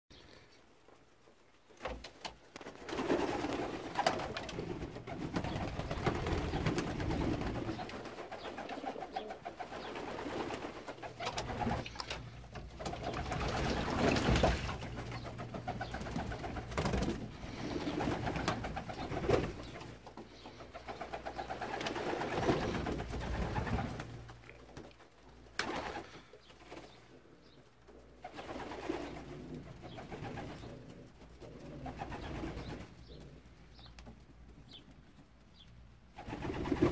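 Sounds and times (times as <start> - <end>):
pigeons cooing: 2.9 - 24.8, 25.6 - 34.0.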